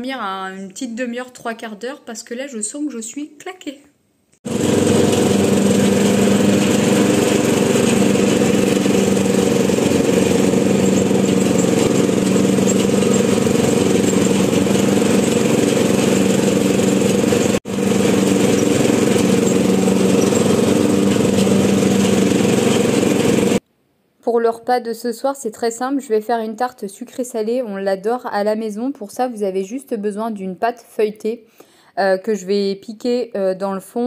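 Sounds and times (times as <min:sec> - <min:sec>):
lawn tractor engine running: 0:04.5 - 0:23.6.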